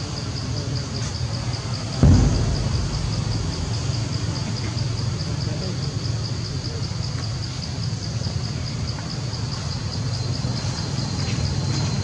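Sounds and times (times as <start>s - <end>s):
low rumble: 2.0s - 5.2s.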